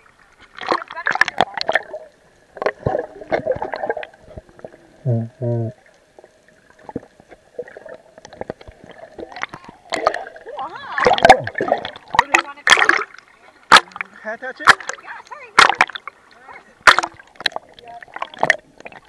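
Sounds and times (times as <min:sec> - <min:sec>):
water gurgling and crackling: 0:00.0 - 0:19.0
faint steady tone: 0:04.2 - 0:11.5
short low hums: 0:05.0 - 0:05.8.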